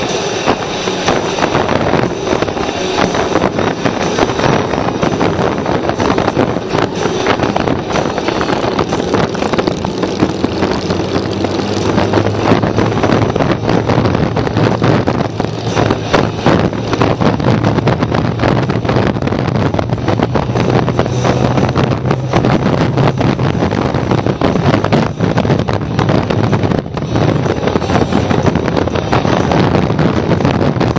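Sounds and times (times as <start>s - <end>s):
motorcycle engines running: 0.0s - 30.9s
wind buffeting microphone: 0.0s - 30.9s.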